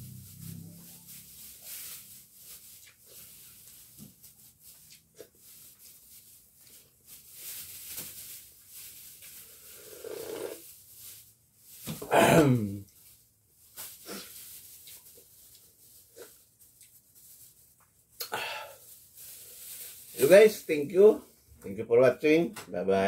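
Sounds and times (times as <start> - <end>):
person slurping soup: 9.6 - 10.6.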